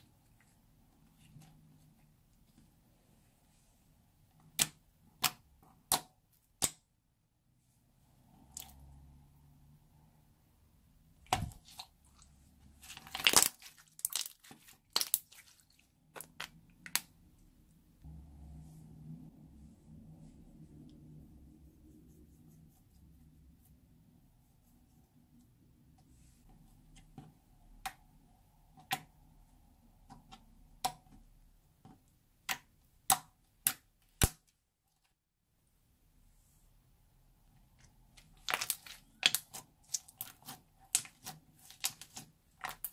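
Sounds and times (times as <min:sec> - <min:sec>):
slime crackling and popping: 0:12.8 - 0:17.1, 0:38.1 - 0:42.9.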